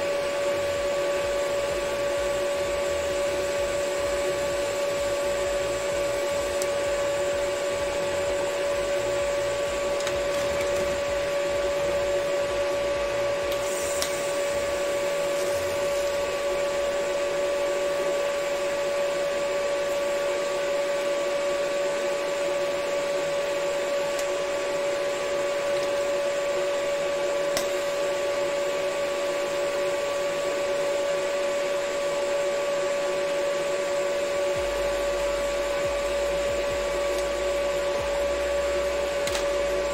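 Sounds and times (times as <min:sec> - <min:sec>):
welding arc humming: 0:00.0 - 0:39.9.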